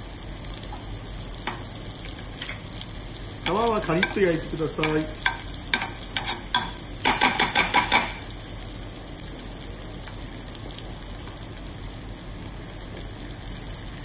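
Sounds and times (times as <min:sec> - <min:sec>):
fish sizzling in butter: 0:00.0 - 0:14.0
metal spoon clinking on pan: 0:03.9 - 0:04.2, 0:04.8 - 0:08.2.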